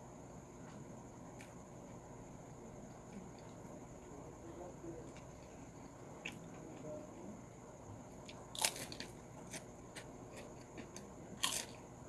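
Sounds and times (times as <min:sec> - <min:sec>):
chewing crunches: 0:08.2 - 0:11.8
crunch of biting prawn crackers: 0:08.2 - 0:11.8.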